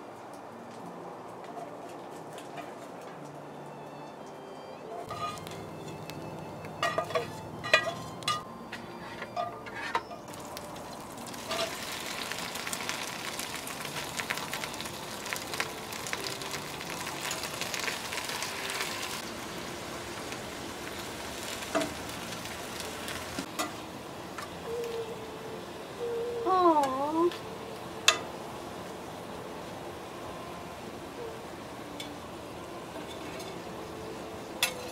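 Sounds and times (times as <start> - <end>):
spatula scraping a pan: 5.1 - 5.5, 6.8 - 10.2
cabbage sizzling in a pan: 10.3 - 23.9.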